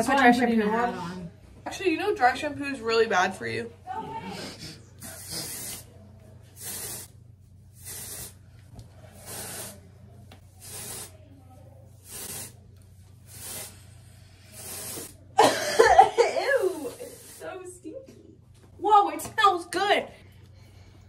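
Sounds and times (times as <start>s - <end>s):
aerosol spray hissing: 5.0s - 5.9s, 6.6s - 8.4s, 9.2s - 9.9s, 10.5s - 11.2s, 11.9s - 12.6s, 13.2s - 15.2s.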